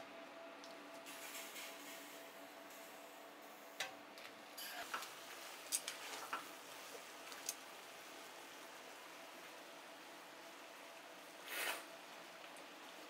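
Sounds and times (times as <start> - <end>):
sauce simmering hiss: 4.6 - 13.0.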